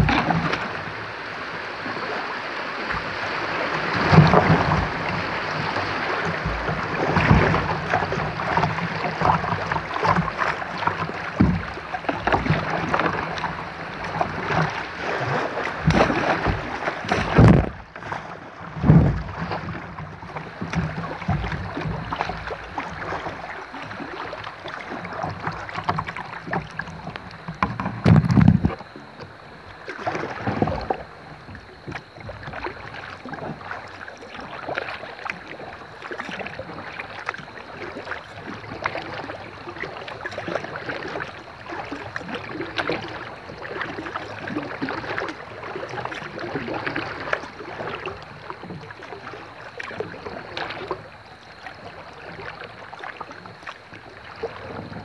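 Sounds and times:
paddle strokes: 0:00.0 - 0:55.0
water splashing and lapping: 0:00.0 - 0:55.0
loud low thump: 0:17.2 - 0:17.8.

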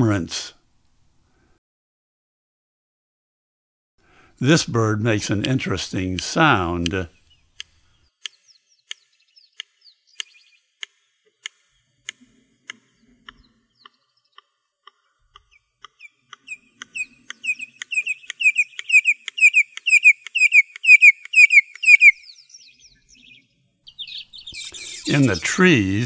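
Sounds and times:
bird sharp clicks: 0:05.4 - 0:22.3
bird piercing falling whistles: 0:17.0 - 0:23.4.

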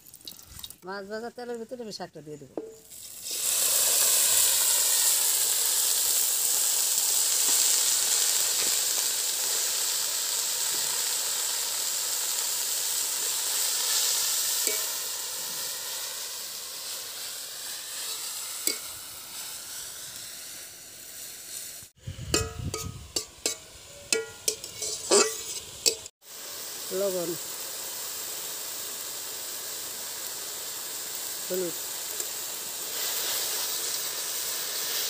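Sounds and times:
leaves sizzling in hot oil: 0:00.0 - 0:35.0
metal spatula tapping: 0:22.3 - 0:26.1.

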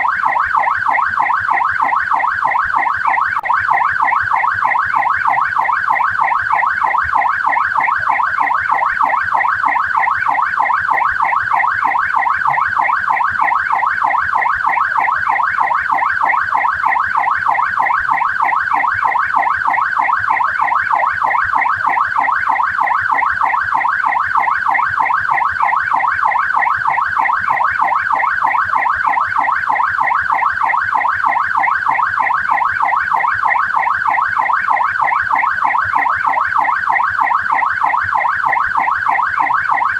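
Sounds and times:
police siren yelping: 0:00.0 - 0:39.9.

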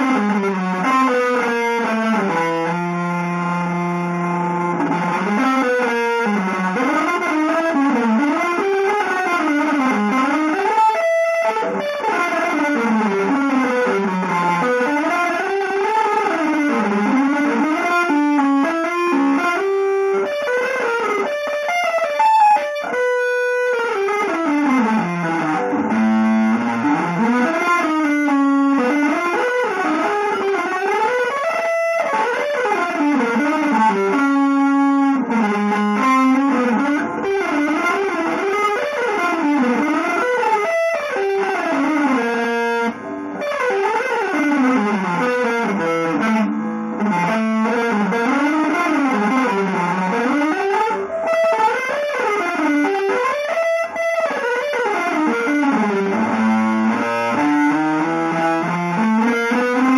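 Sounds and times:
electric guitar playing fast: 0:00.0 - 0:59.9.

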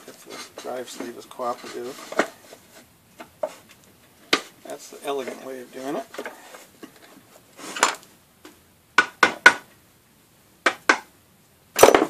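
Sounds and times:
metal scrape: 0:00.0 - 0:03.7, 0:04.3 - 0:08.0.

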